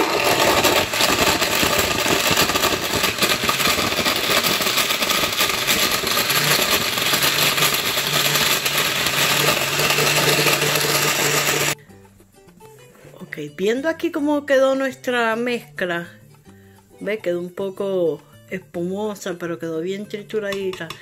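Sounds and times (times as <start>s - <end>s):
blender whirring: 0.0s - 11.8s.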